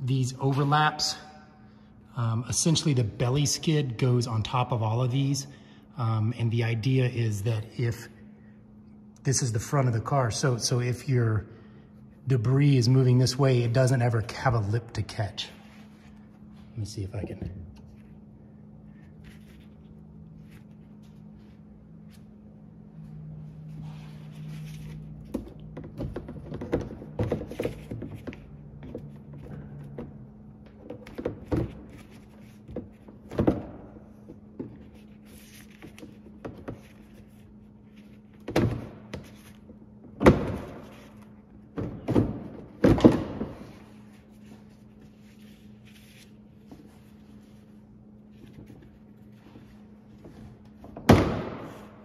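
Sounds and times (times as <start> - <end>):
plastic panels thunking and knocking: 25.3 - 32.0, 41.7 - 43.8.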